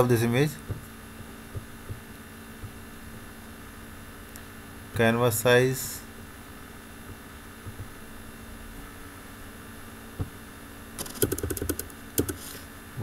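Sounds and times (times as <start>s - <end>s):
steady electrical hum: 0.0s - 13.0s
keyboard keys clicking: 11.0s - 12.4s.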